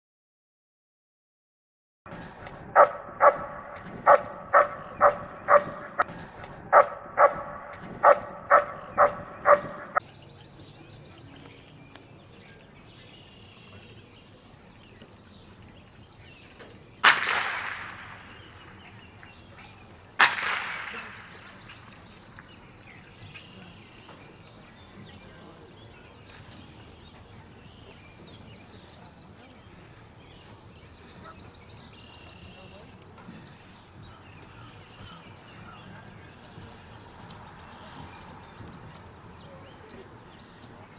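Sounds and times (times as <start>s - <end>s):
dog barking: 2.8s - 6.0s, 6.7s - 10.0s
pistol shots echoing: 17.0s - 18.6s, 20.2s - 21.6s.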